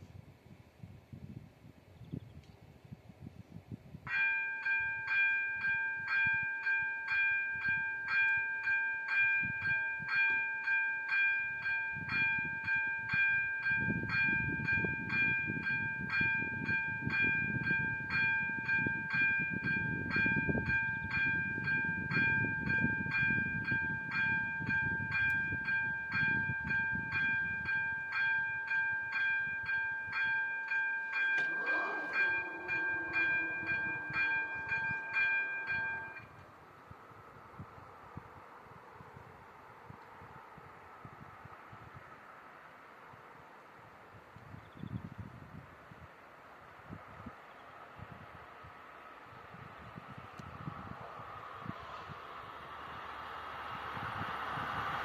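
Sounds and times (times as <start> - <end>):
level crossing warning bell: 4.1 - 36.4
train rumbling past: 7.6 - 36.4, 49.2 - 55.0
short rising tone: 31.4 - 36.2.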